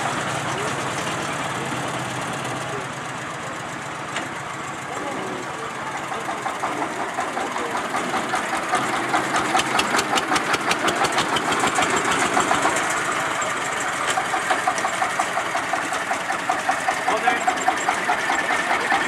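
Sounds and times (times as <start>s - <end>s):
diesel engine knocking putter: 0.0s - 19.0s.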